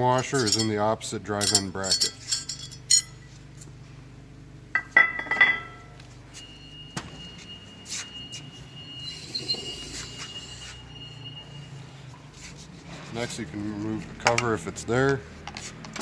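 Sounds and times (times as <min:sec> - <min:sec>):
short metallic ring: 0:00.2 - 0:00.8, 0:01.4 - 0:03.3, 0:04.8 - 0:08.0
metal parts clinking: 0:00.2 - 0:03.3.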